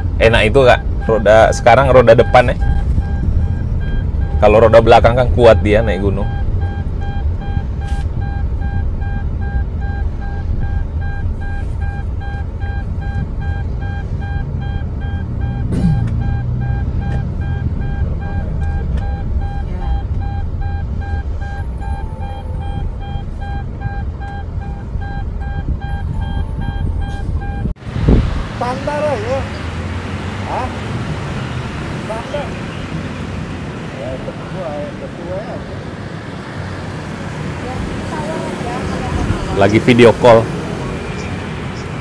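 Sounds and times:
engine and road rumble: 0.0s - 42.0s
electronic warning chime beeping: 0.7s - 27.7s.

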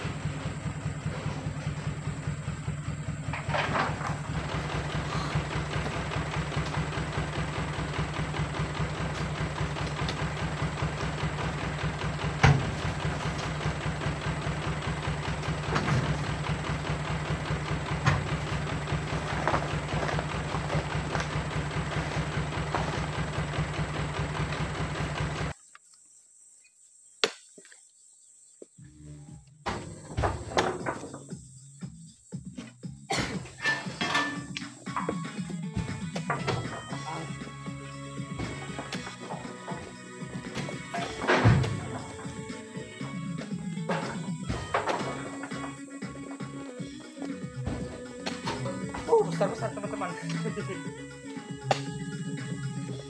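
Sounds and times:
truck diesel engine idling: 0.0s - 25.5s, 34.4s - 53.0s
heavy thuds in truck bed: 11.4s - 13.8s, 15.1s - 23.6s, 29.6s - 31.3s, 40.6s - 42.5s, 47.5s - 49.3s.

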